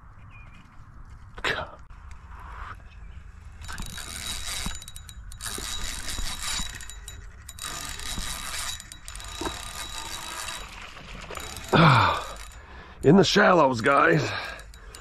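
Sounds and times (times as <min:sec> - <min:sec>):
spinning reel whirring: 0:03.6 - 0:15.0.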